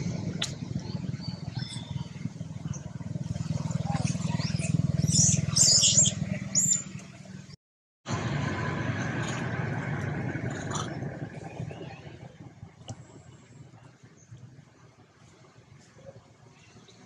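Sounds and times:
monkey squealing: 0:04.3 - 0:06.8
steady low hum: 0:06.2 - 0:17.0.

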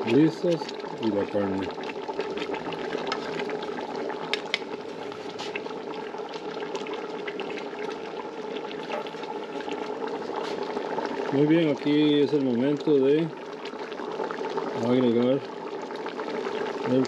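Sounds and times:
stew boiling and bubbling: 0:00.0 - 0:17.0.

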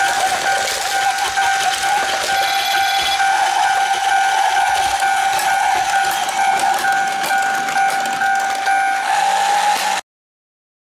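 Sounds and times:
crossing warning beeps: 0:00.0 - 0:10.0
toy train whirring and rattling: 0:00.0 - 0:10.0.

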